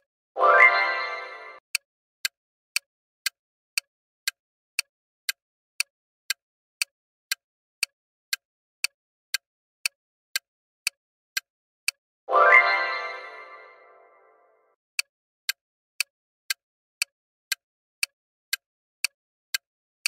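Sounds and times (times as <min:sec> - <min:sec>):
clock-like timer ticks: 0:00.0 - 0:13.8, 0:15.0 - 0:19.7.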